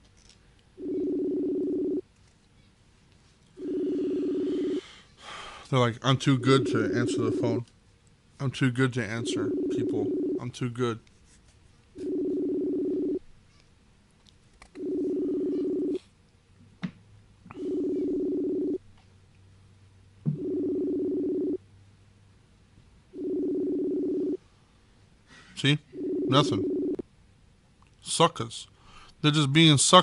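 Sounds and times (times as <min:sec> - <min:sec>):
phone ringback tone: 0:00.8 - 0:02.0, 0:03.6 - 0:04.8, 0:06.3 - 0:07.5, 0:09.2 - 0:10.4, 0:12.0 - 0:13.2, 0:14.8 - 0:16.0, 0:17.5 - 0:18.8, 0:20.4 - 0:21.6, 0:23.2 - 0:24.4, 0:25.9 - 0:27.0.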